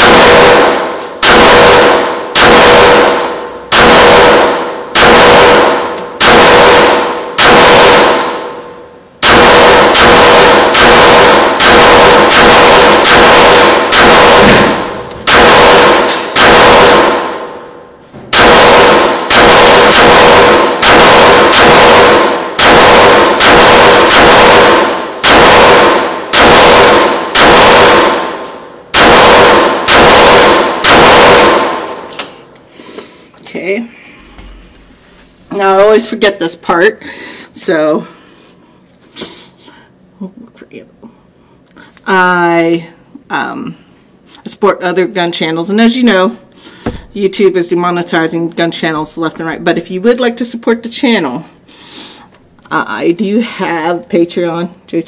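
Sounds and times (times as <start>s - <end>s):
pistol shots echoing indoors: 0.0s - 32.5s.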